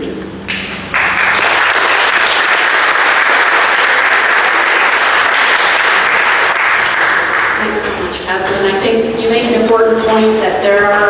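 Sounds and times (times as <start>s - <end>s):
audience applause: 0.9s - 8.0s.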